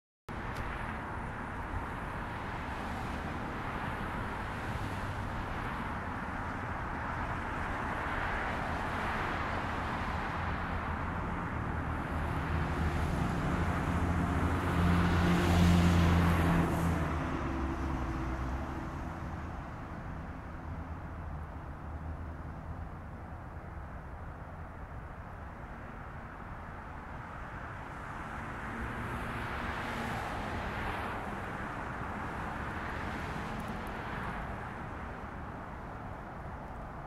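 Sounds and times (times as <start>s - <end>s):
road traffic noise: 0.3s - 37.0s
vehicle passing: 8.6s - 22.2s, 27.8s - 36.0s.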